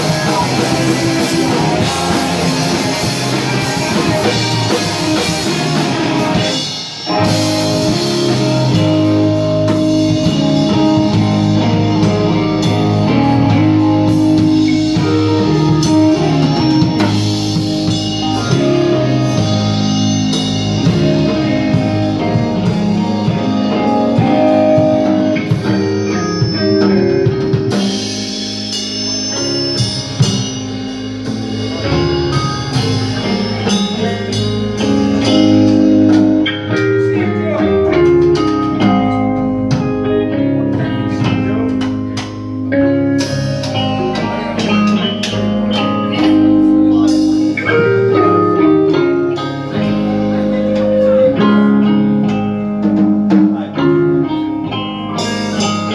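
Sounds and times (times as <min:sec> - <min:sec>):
drum kit: 0:00.0 - 0:55.9
electric guitars: 0:00.0 - 0:55.9.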